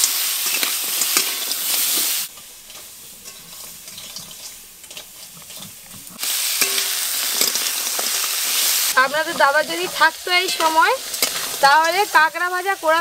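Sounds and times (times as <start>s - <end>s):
crab frying in oil: 0.0s - 13.0s
spatula scraping a wok: 0.0s - 13.0s.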